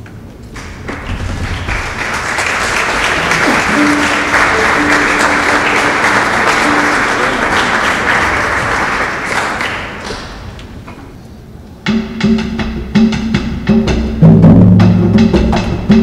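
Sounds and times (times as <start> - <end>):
audience applause: 0.5 - 10.8.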